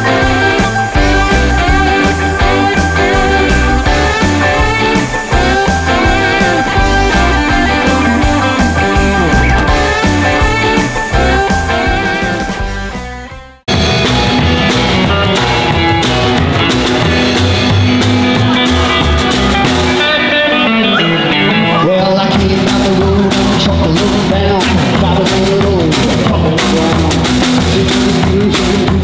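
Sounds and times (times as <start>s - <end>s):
upright double bass: 0.0s - 20.0s
drum kit beat: 0.0s - 20.4s, 22.2s - 29.0s
electric guitar: 0.0s - 29.0s.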